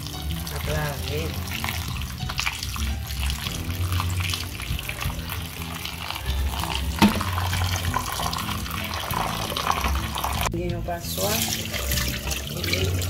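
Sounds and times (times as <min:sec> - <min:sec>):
tap water running into bowl: 0:00.0 - 0:10.5, 0:11.2 - 0:13.0
background music: 0:00.0 - 0:13.0
sharp knock: 0:07.0 - 0:07.4.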